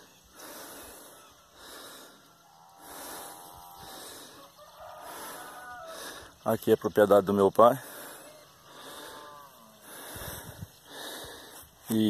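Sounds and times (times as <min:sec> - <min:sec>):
distant rooster crowing: 0:02.5 - 0:06.4.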